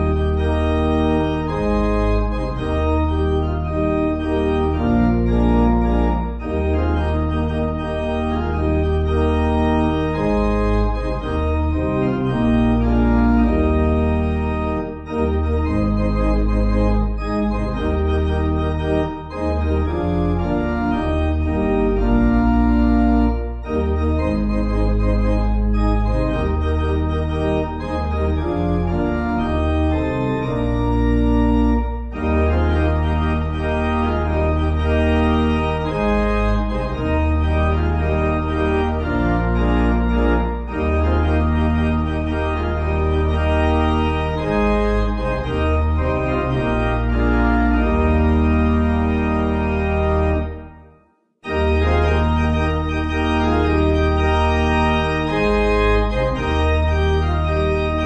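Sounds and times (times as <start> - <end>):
organ playing a hymn: 0.0 - 58.0.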